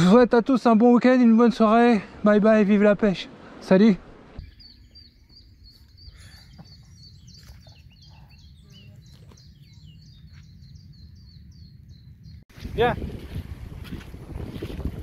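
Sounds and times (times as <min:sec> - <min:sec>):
wind rumble on microphone: 0:05.4 - 0:15.0.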